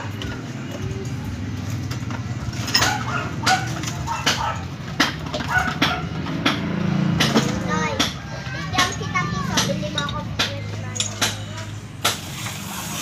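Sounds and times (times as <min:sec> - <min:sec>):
hand tools knocking on pipe fittings: 0:02.7 - 0:11.7.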